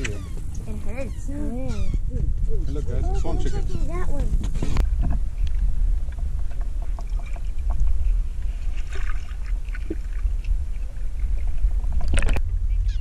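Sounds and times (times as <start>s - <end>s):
low rumble: 0.0s - 13.0s
light water sounds: 4.5s - 12.5s.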